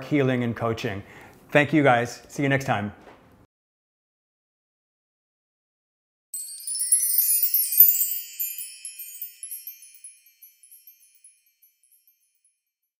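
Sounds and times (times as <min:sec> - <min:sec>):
wind chimes tinkling: 0:06.4 - 0:12.8.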